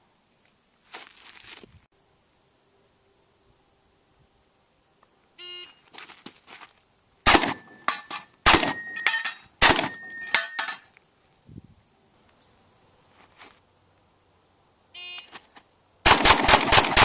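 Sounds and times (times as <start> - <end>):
shotgun shots: 7.2 - 7.8, 8.4 - 9.0, 9.6 - 10.2, 16.0 - 17.0
bullet ringing on steel target: 7.4 - 10.8.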